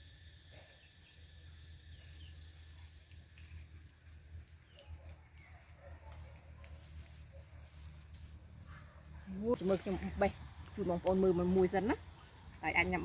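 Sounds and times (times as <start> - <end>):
pulsed insect trill: 0.0 - 5.5
faint high chirping: 0.5 - 7.8.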